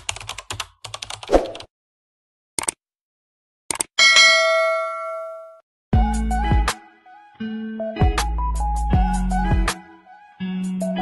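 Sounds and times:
bell-like ding: 0:04.0 - 0:05.6.

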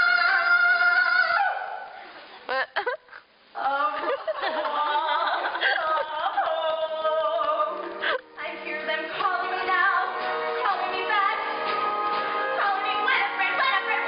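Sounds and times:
musical theatre singing: 0:00.0 - 0:02.0, 0:03.6 - 0:14.0
instrumental accompaniment: 0:07.7 - 0:14.0.

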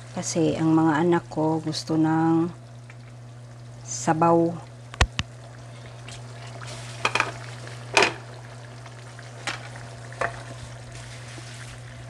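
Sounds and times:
food sizzling in a frying pan: 0:06.2 - 0:12.0.

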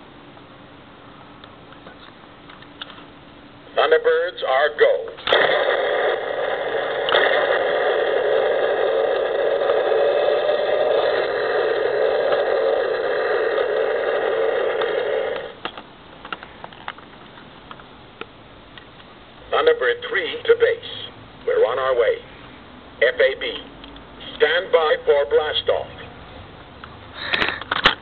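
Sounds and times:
toy rocket engine sound effect: 0:05.2 - 0:15.7.

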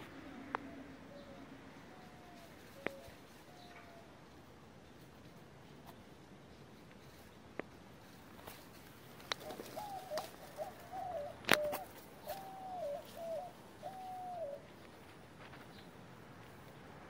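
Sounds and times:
bird cooing: 0:00.0 - 0:04.3, 0:09.3 - 0:14.8.

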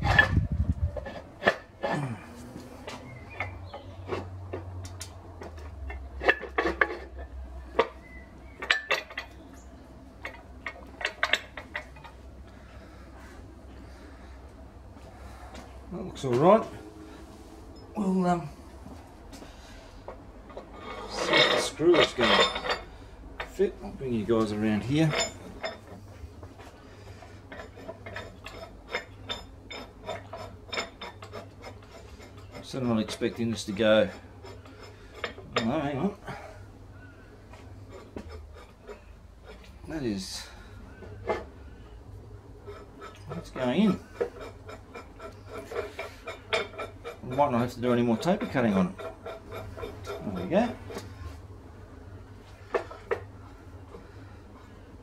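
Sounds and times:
low steady hum: 0:00.0 - 0:55.0
metal nut clinking against vice: 0:03.4 - 0:09.6, 0:10.2 - 0:12.2, 0:20.5 - 0:23.6, 0:24.8 - 0:26.0.

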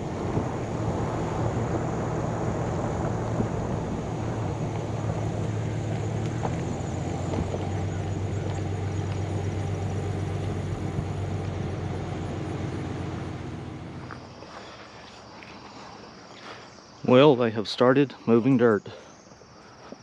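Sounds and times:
vehicle engine running: 0:00.0 - 0:14.6
insects chirring: 0:00.0 - 0:20.0.

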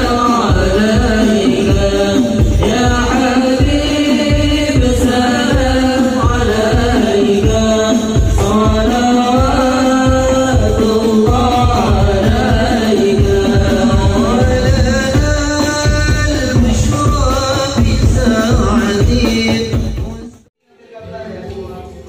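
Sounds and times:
frame drums beating: 0:00.0 - 0:20.4
men singing in unison: 0:00.0 - 0:20.5.

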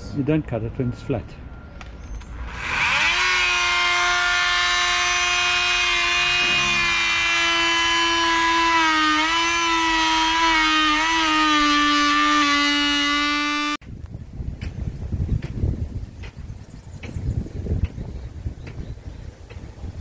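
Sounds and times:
power tool high whine: 0:02.1 - 0:13.8.

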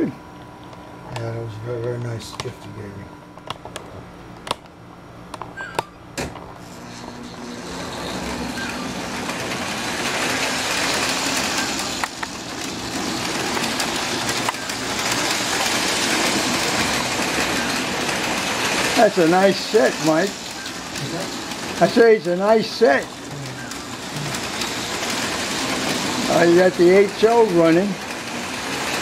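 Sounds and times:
model trains rolling rumble: 0:06.6 - 0:29.0.

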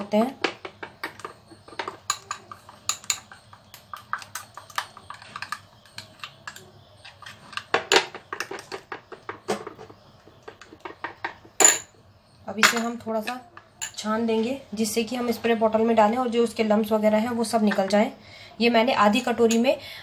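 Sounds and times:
spoon clinking against glass bowl: 0:01.2 - 0:07.6.

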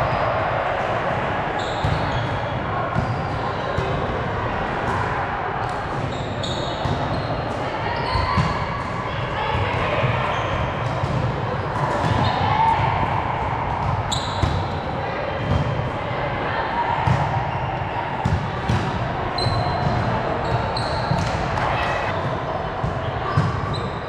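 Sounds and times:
murmur of voices echoing: 0:00.0 - 0:24.0
sneakers squeaking on court: 0:01.6 - 0:02.4, 0:06.1 - 0:07.4, 0:19.4 - 0:22.4.

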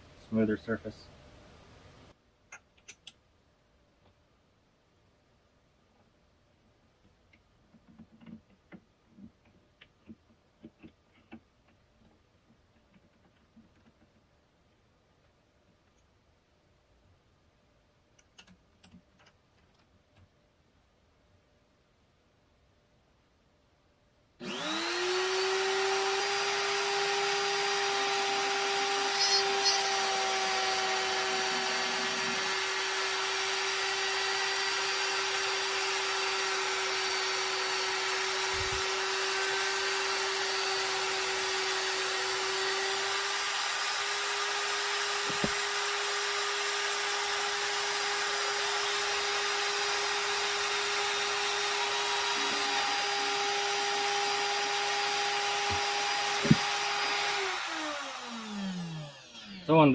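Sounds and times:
die grinder running: 0:24.4 - 0:59.9.

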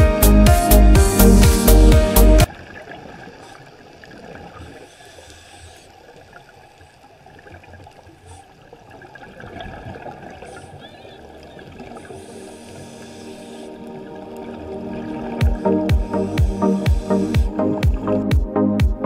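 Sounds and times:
muffled underwater water noise: 0:02.5 - 0:18.4
low thumps: 0:15.3 - 0:19.0.

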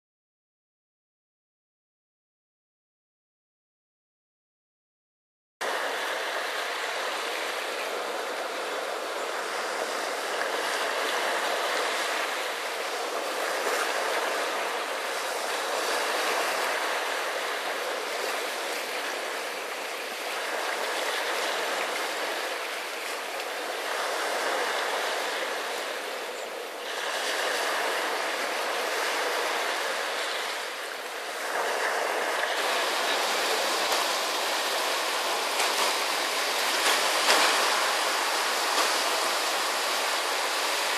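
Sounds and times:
small waves breaking on shore: 0:05.6 - 0:40.9
surf washing over cobbles: 0:26.9 - 0:40.9.

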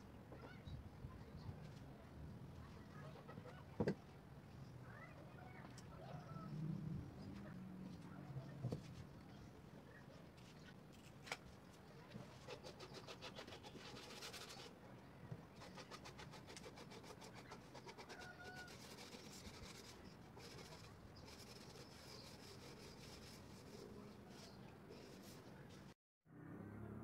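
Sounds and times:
sandpaper rubbing on wood: 0:15.6 - 0:25.4.

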